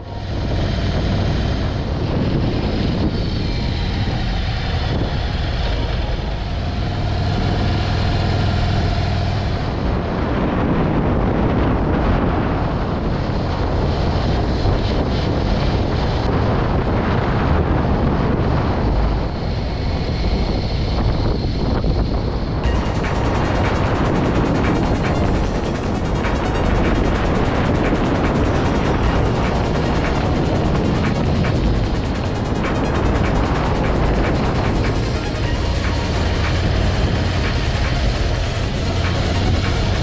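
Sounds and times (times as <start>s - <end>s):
wind rushing over microphone: 0.0s - 40.0s
motorcycle engine running: 22.6s - 40.0s.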